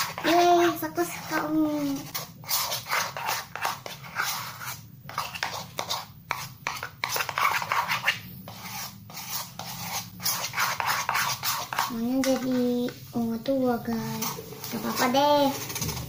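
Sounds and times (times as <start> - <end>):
spoon scraping ceramic bowl: 0.0 - 12.6, 14.0 - 16.0.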